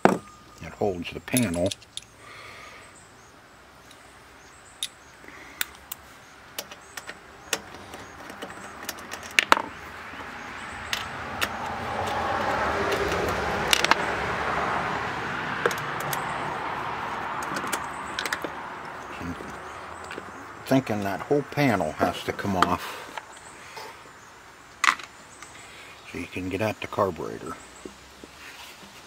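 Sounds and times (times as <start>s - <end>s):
socket wrench clinking on metal: 1.2s - 2.2s.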